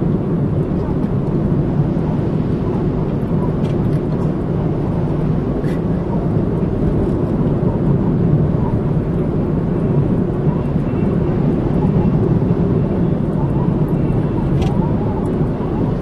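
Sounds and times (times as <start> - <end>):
car driving on street: 0.0 - 16.0.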